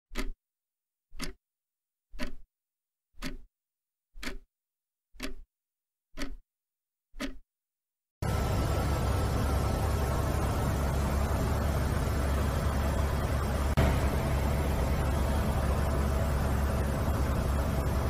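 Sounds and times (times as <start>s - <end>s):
clock ticking: 0.1s - 0.4s, 1.1s - 1.4s, 2.1s - 2.5s, 3.2s - 3.5s, 4.2s - 4.5s, 5.2s - 5.5s, 6.2s - 6.4s, 7.2s - 7.4s.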